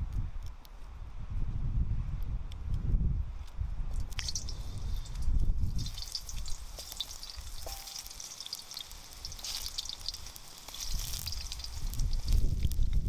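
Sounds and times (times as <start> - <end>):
food sizzling in hot oil: 4.0 - 13.0.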